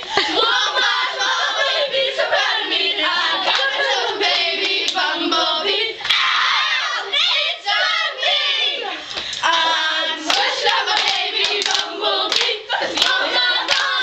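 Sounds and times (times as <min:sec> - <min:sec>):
girls singing in unison: 0:00.0 - 0:14.0
hands clapping: 0:03.5 - 0:03.7, 0:10.3 - 0:14.0.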